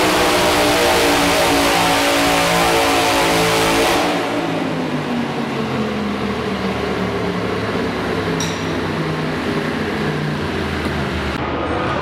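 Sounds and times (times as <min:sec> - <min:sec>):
tractor engine idling: 0:04.6 - 0:11.4.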